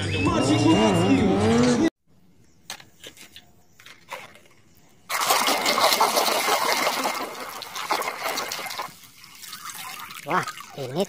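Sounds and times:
hand sloshing in soapy water: 0:05.1 - 0:11.0.

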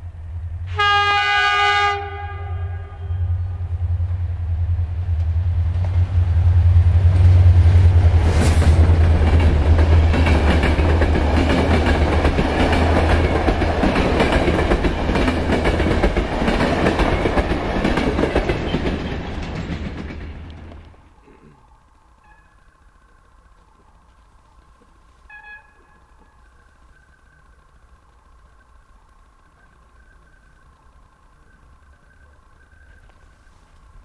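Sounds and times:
locomotive drone: 0:00.0 - 0:34.0
train wheels clattering over rail joints: 0:08.3 - 0:21.1.

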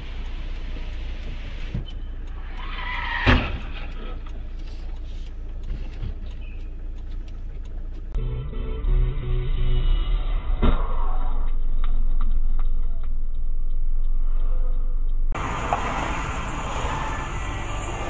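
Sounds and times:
car engine and road rumble: 0:00.0 - 0:18.0
music: 0:08.2 - 0:10.7.

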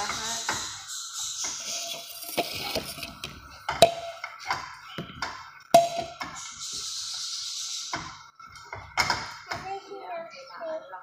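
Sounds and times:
metal utensil knocking on frying pan: 0:03.8 - 0:04.2, 0:05.8 - 0:06.3.

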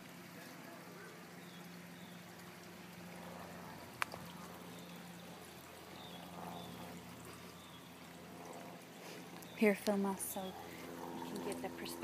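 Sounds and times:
waterfall pouring into pool: 0:00.0 - 0:06.2.

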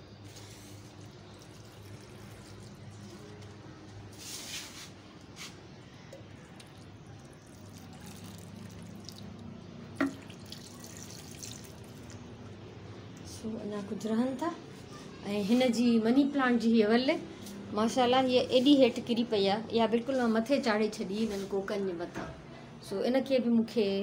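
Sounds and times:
water trickling onto soil: 0:00.2 - 0:09.5, 0:10.1 - 0:12.3.

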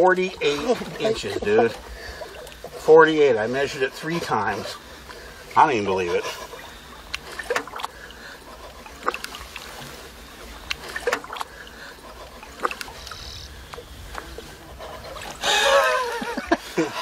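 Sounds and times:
small water splashes: 0:00.0 - 0:16.8
low steady water rush: 0:00.0 - 0:17.0.

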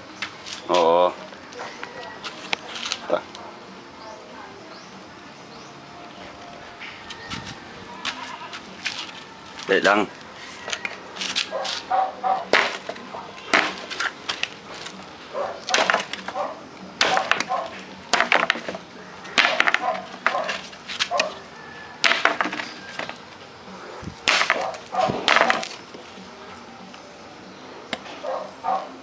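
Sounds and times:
machete chopping branches: 0:12.5 - 0:14.9, 0:15.7 - 0:16.4, 0:17.0 - 0:21.3, 0:22.0 - 0:23.2, 0:24.2 - 0:25.8.

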